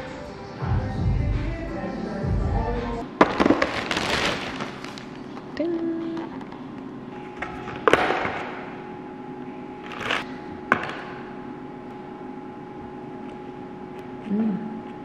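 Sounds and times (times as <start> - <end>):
background music: 0.0 - 3.0.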